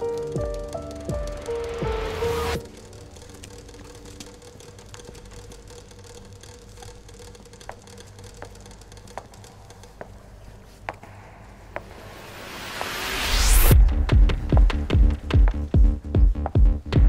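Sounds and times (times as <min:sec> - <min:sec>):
footsteps on brick pavement: 0:14.2 - 0:17.0.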